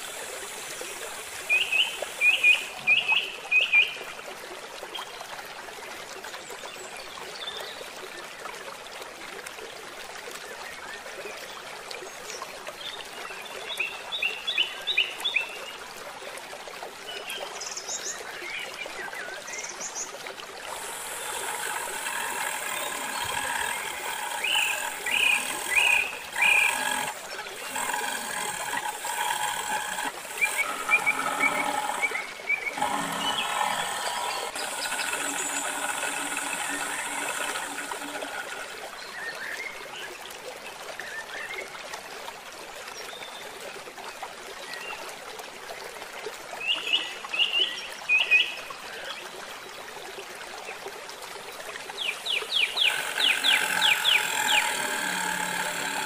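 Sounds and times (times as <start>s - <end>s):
steady outdoor hiss: 0.0s - 4.0s, 51.5s - 56.0s.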